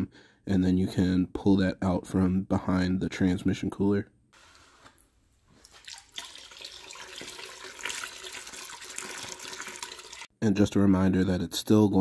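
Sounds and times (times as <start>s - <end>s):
coolant pouring into bucket: 5.6s - 10.3s.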